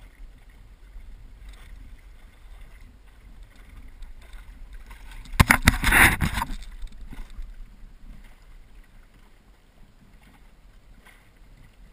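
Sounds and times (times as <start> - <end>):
water lapping at hull: 0.0 - 11.9
wind on microphone: 0.0 - 11.9
sharp knocks on wooden canoe: 5.3 - 6.6.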